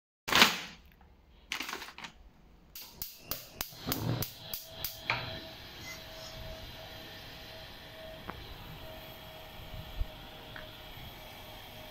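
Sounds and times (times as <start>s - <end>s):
gas burner hissing: 2.7s - 11.9s.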